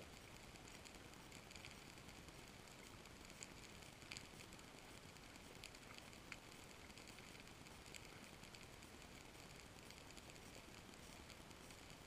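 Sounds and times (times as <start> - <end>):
faint low underwater hiss: 0.0 - 12.0
sharp high clicks: 0.0 - 12.0.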